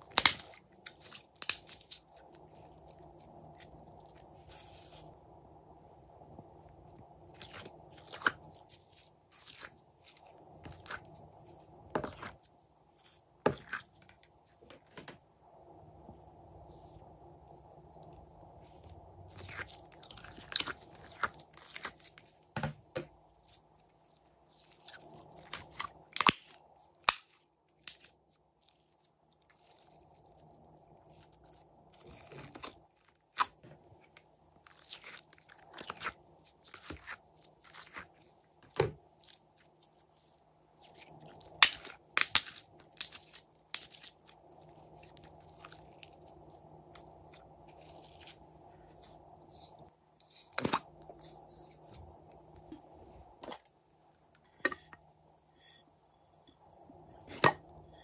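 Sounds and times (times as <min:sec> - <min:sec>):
slime and foam beads squishing: 0:00.0 - 0:05.2, 0:07.2 - 0:14.6, 0:18.3 - 0:22.6, 0:23.3 - 0:33.6, 0:34.6 - 0:48.4.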